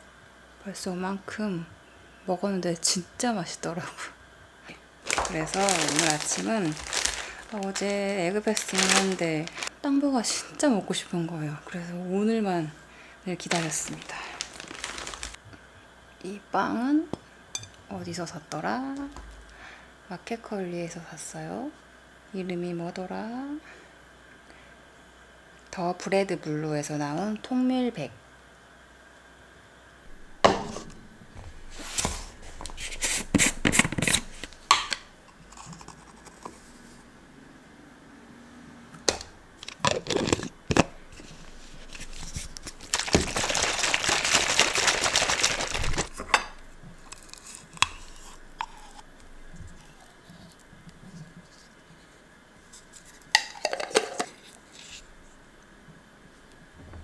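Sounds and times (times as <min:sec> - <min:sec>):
shaker cup shaken hard: 0:42.0 - 0:46.2
spoon scraping: 0:47.1 - 0:49.1.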